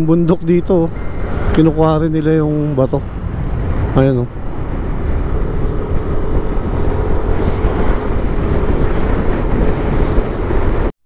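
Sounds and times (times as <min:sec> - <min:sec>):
wind rushing over microphone: 0:00.0 - 0:10.9
road noise: 0:00.0 - 0:11.0
motorcycle engine: 0:00.9 - 0:10.7.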